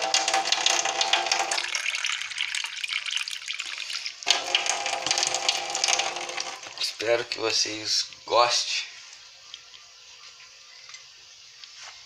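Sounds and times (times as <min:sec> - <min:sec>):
tap water running into metal sink: 0:00.0 - 0:07.0.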